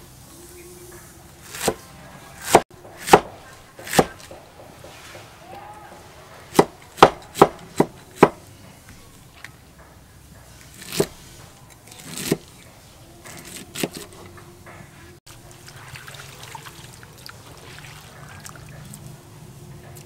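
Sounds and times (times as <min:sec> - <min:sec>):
cleaver chopping on wooden board: 0:02.4 - 0:05.0, 0:06.5 - 0:08.4, 0:10.8 - 0:11.2.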